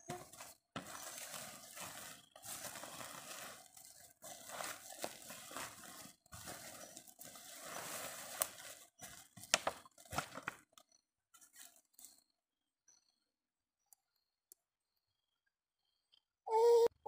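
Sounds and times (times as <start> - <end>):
plastic sack rustling: 0.0 - 10.6
plastic bottle crinkling: 0.0 - 10.8.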